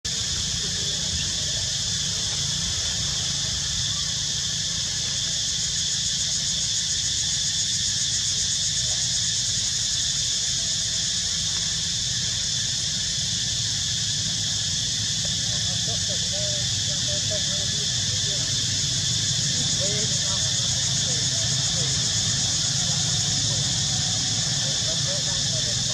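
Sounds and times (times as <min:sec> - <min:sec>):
insect chorus buzzing: 0:00.1 - 0:25.9.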